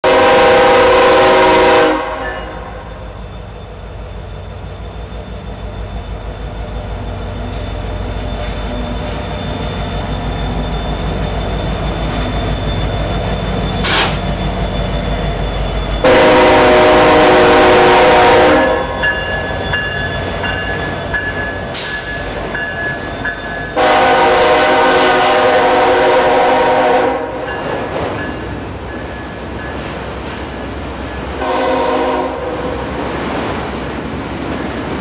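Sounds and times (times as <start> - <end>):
locomotive horn blast: 0.0 - 2.9, 16.0 - 19.0, 23.8 - 27.5, 31.4 - 32.8
locomotive engine rumble: 2.7 - 35.0.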